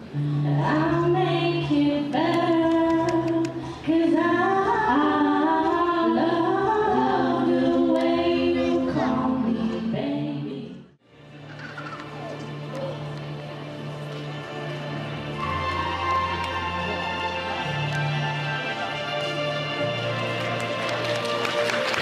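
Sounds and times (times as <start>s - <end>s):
girls singing into microphones: 0.1s - 10.8s.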